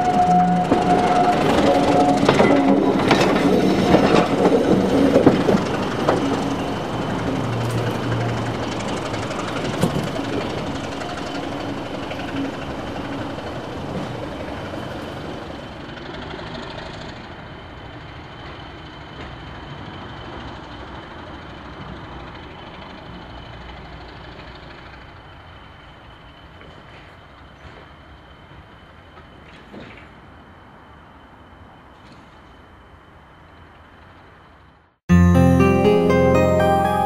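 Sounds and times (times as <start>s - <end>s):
train rolling along track: 0.0s - 34.8s.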